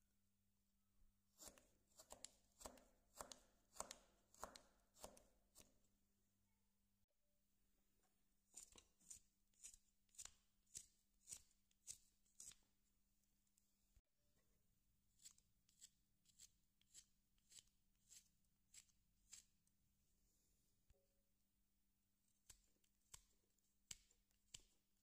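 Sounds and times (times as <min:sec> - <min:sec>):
knife carving wood: 0:01.3 - 0:05.8, 0:08.4 - 0:12.8, 0:15.1 - 0:19.7, 0:22.3 - 0:25.0.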